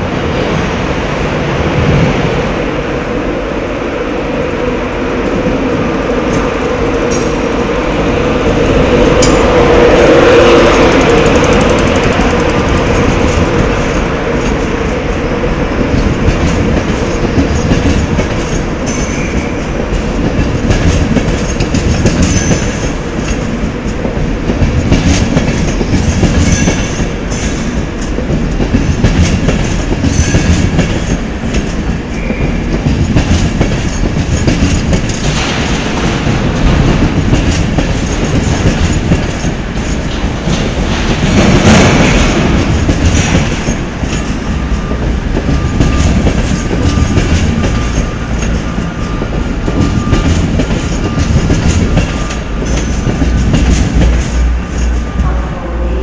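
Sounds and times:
train wheels clattering over rail joints: 0:06.2 - 0:55.2
high wheel squeals: 0:32.1 - 0:32.7.

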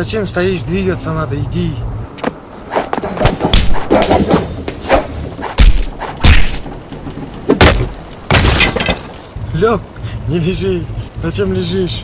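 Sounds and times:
heavy punch thuds: 0:03.2 - 0:06.7.

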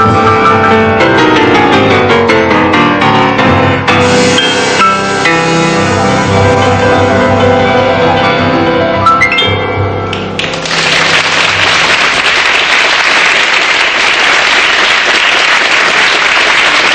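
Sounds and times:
instrumental background music: 0:00.0 - 0:10.8
applause: 0:10.2 - 0:16.9.

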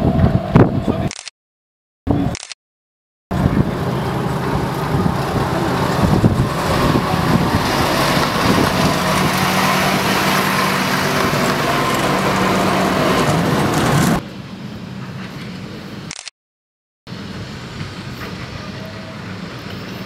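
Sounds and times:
train wheels on rails: 0:03.3 - 0:14.2, 0:17.3 - 0:20.0
diesel locomotive engine: 0:03.3 - 0:16.2, 0:17.1 - 0:20.0.

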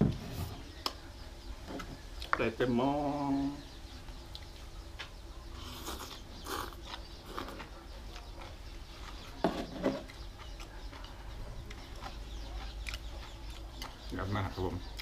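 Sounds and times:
chewing: 0:04.3 - 0:15.0
slurping greens: 0:05.6 - 0:07.7.

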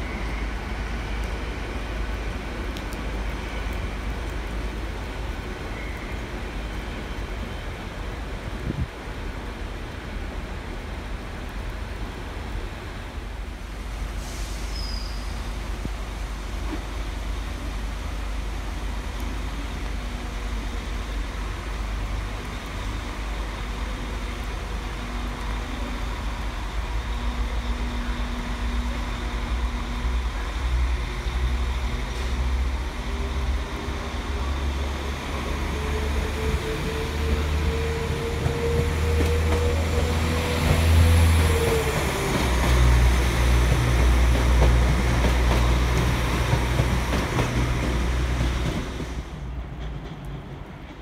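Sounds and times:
train rumbling past: 0:00.0 - 0:51.0
brief high squeak: 0:14.4 - 0:15.4.

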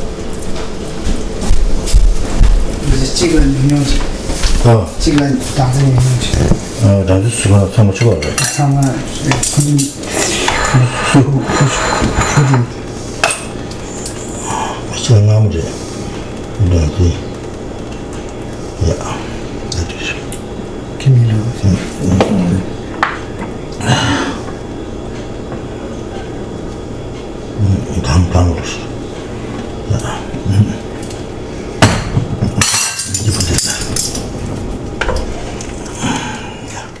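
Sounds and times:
utensils and dishes clinking: 0:07.4 - 0:14.3, 0:31.9 - 0:34.4
person talking: 0:21.0 - 0:22.7.

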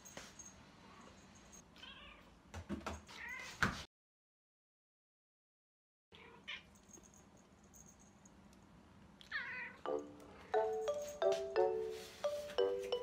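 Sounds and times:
cat meowing: 0:01.8 - 0:02.3, 0:06.1 - 0:06.7, 0:09.2 - 0:09.8.

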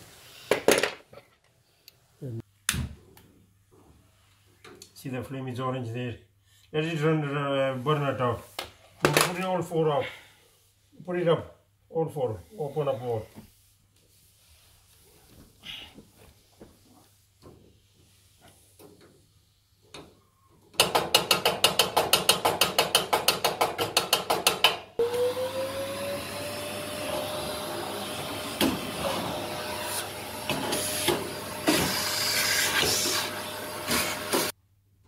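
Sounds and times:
vacuum cleaner motor: 0:25.0 - 0:34.6.

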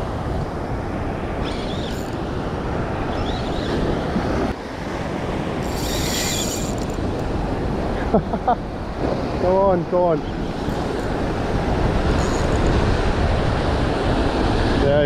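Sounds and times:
high rasp: 0:05.6 - 0:07.0
surf washing up beach: 0:07.0 - 0:15.0
wind buffeting microphone: 0:08.7 - 0:15.0.

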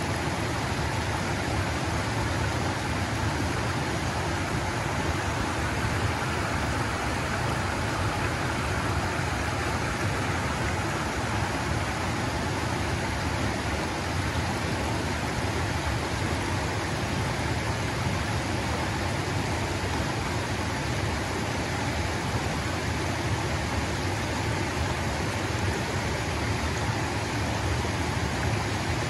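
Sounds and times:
water rushing over rocks: 0:00.0 - 0:29.0.

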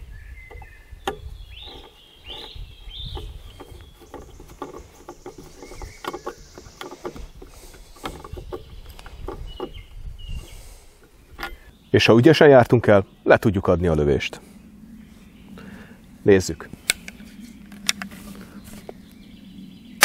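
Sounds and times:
wrench clicking and scraping metal: 0:00.5 - 0:09.8, 0:11.3 - 0:11.7.

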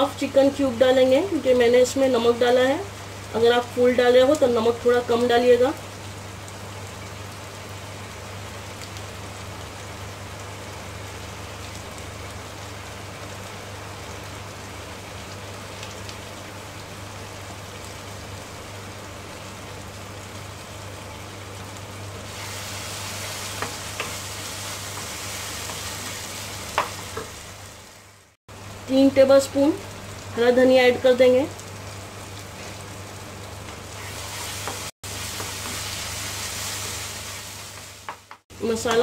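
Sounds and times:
masala sizzling in a frying pan: 0:00.0 - 0:39.0
wooden spatula knocking pan: 0:26.7 - 0:27.3.

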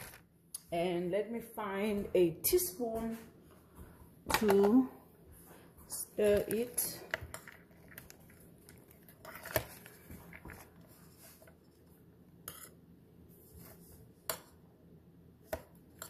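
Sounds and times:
spoon stirring dry kibble: 0:05.9 - 0:12.8.

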